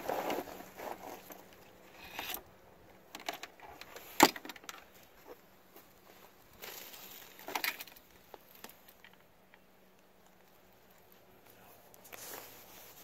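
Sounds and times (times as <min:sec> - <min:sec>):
clicks and rustles of wire: 0:06.6 - 0:12.9.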